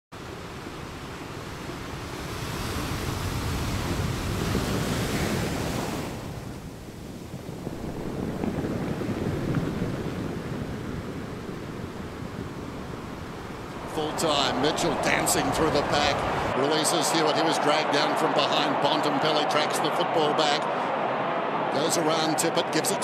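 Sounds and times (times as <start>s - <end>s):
small waves washing on beach: 0.2s - 16.6s
wind rumble on microphone: 0.8s - 16.6s.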